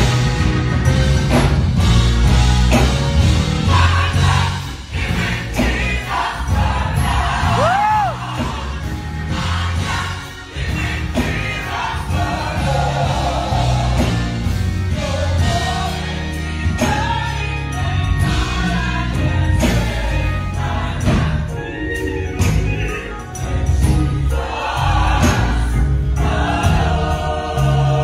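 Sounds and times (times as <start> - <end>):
bass accompaniment: 0.0 - 28.0
gospel choir singing: 0.0 - 28.0.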